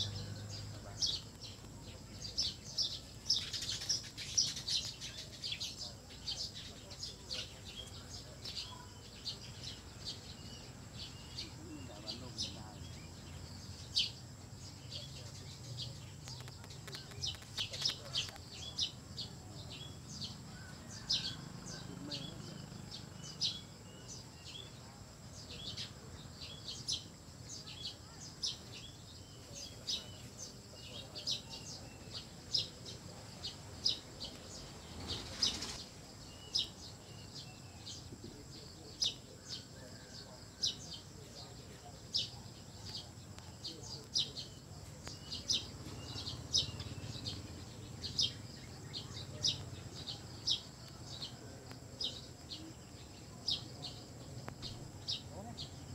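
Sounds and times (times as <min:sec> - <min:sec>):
low background murmur: 0:00.0 - 0:55.9
small birds chirping: 0:00.0 - 0:55.9.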